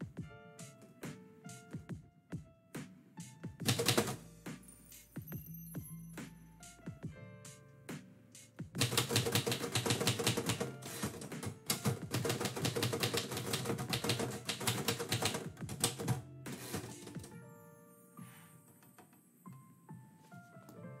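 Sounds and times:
manual typewriter keystrokes: 0:03.6 - 0:04.2, 0:08.8 - 0:17.3.

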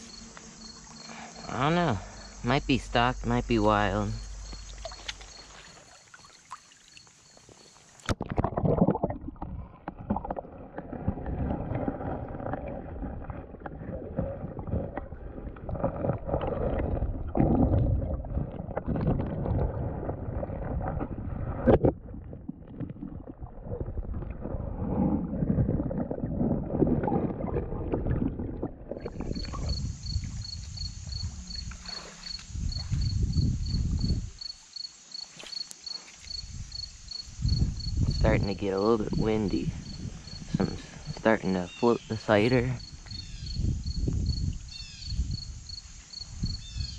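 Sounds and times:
crickets chirping: 0:00.0 - 0:08.1, 0:29.0 - 0:46.9
stream flowing: 0:00.0 - 0:09.2
muffled underwater stream rushing: 0:00.0 - 0:34.4, 0:36.5 - 0:44.7.

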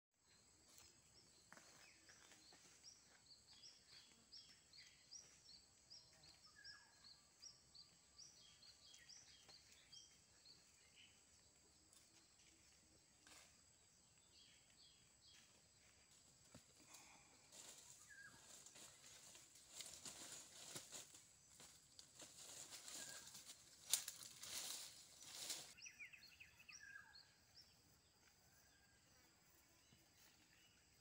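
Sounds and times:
bird chirping: 0:00.2 - 0:16.0, 0:22.7 - 0:31.0.

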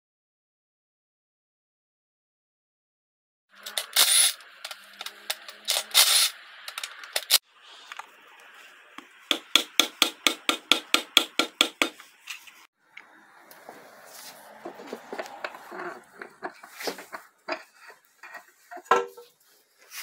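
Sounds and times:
ratchet wrench clicking: 0:03.6 - 0:07.4
tool scraping and clattering: 0:03.6 - 0:07.4, 0:14.1 - 0:20.0.

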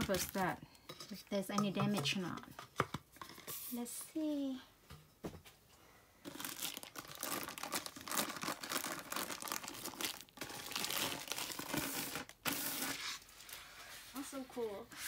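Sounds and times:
plastic wrapping crinkling and tearing: 0:06.2 - 0:13.7.

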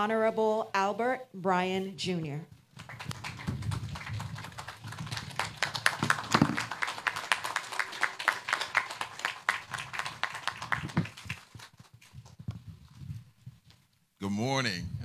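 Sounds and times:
crowd clapping: 0:02.7 - 0:12.4.

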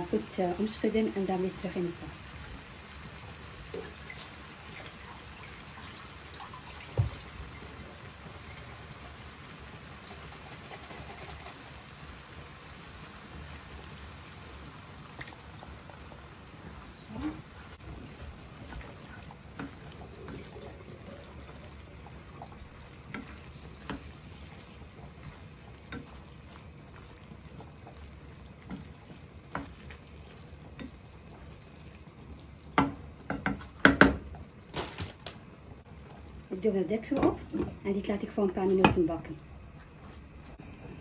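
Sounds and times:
faint sizzle: 0:00.0 - 0:41.0
spatula stirring sauce in a pan: 0:17.8 - 0:34.2
utensils knocking against pan: 0:32.8 - 0:34.2.

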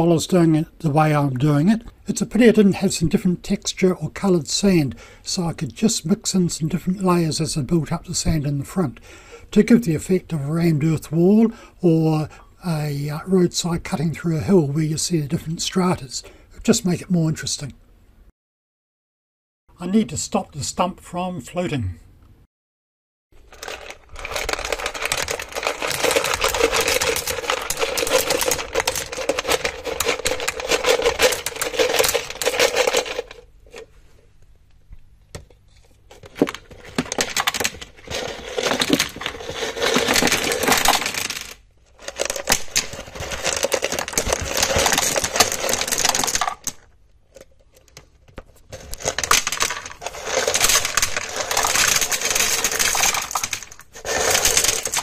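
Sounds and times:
small stones clattering: 0:23.4 - 0:33.4, 0:36.2 - 0:48.0, 0:48.7 - 0:55.0.

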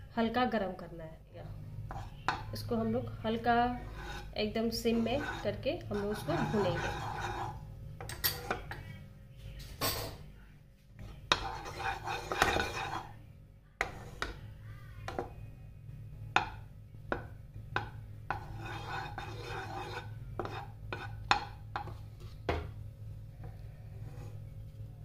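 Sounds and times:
wooden spatula scraping pan: 0:01.9 - 0:07.7, 0:11.0 - 0:13.2, 0:13.8 - 0:14.4, 0:18.3 - 0:22.7, 0:23.4 - 0:24.6
spatula knocking against pan: 0:16.3 - 0:18.6, 0:20.4 - 0:22.7.

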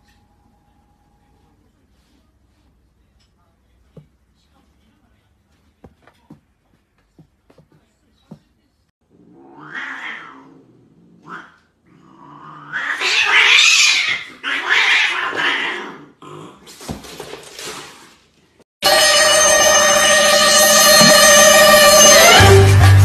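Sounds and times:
cat yowling: 0:09.3 - 0:10.6, 0:12.6 - 0:16.0.

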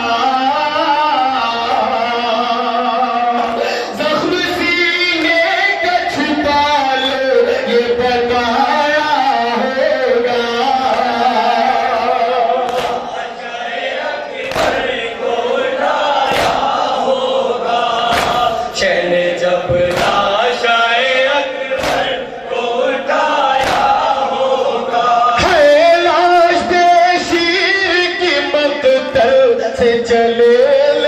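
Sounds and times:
men chanting in chorus: 0:00.0 - 0:31.0
hands striking chests: 0:12.7 - 0:13.1, 0:14.4 - 0:14.9, 0:16.3 - 0:16.8, 0:18.1 - 0:18.6, 0:19.9 - 0:20.4, 0:21.8 - 0:22.2, 0:23.6 - 0:24.1.

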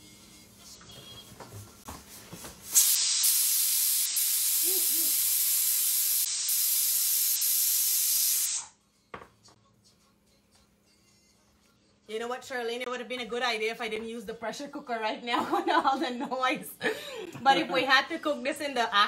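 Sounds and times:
pressure cooker steam hissing: 0:02.7 - 0:08.7.

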